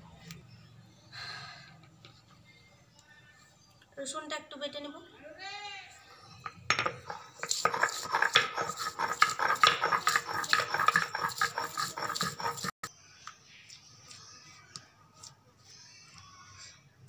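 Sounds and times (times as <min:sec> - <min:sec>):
stone roller crushing garlic: 0:06.8 - 0:12.9.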